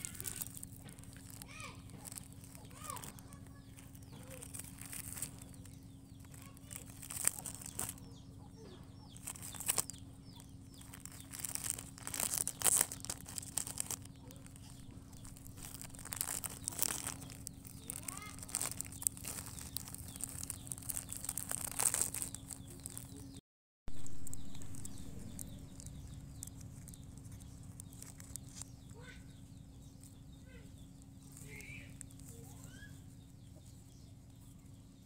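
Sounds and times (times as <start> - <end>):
plastic wrapper crinkling: 0.0 - 8.2, 9.1 - 28.7
puppy chewing: 0.0 - 29.1
faint chirps: 24.0 - 35.0.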